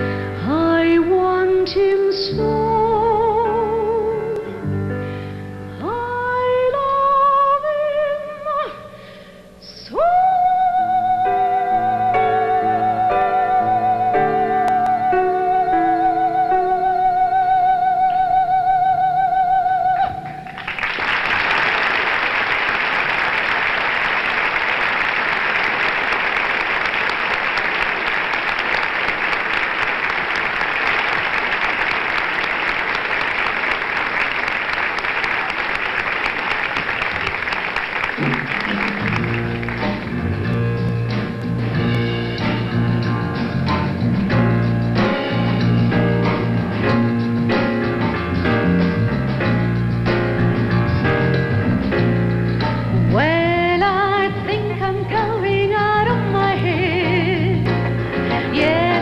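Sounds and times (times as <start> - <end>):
audience applause: 20.5 - 40.6
band playing: 38.0 - 54.1, 54.7 - 59.0.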